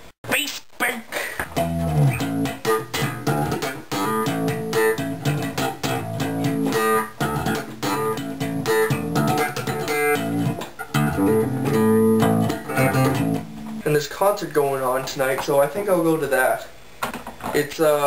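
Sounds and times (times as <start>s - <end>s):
electric bass plucked notes: 1.4s - 14.0s.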